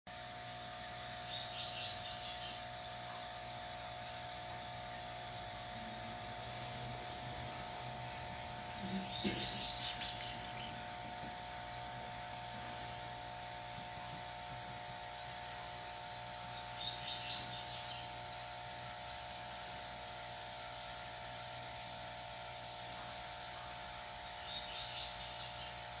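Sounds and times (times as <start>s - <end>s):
aquarium equipment humming: 0.1s - 26.0s
bird chirping: 8.8s - 10.8s, 16.5s - 18.1s.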